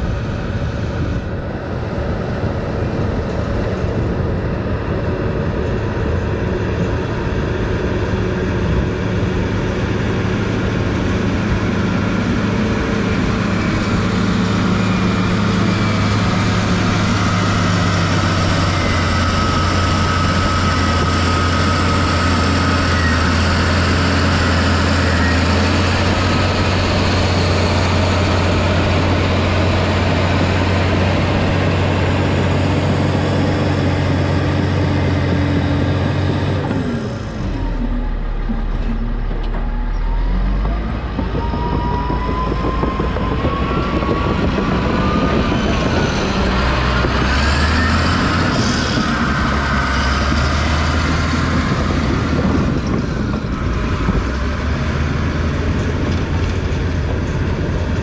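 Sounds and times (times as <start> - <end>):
diesel engine running under load: 0.0 - 58.0
rising squeals: 13.4 - 55.9.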